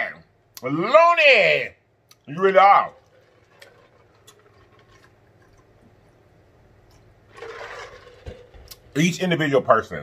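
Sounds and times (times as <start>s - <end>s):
person gulping water: 3.0s - 6.2s.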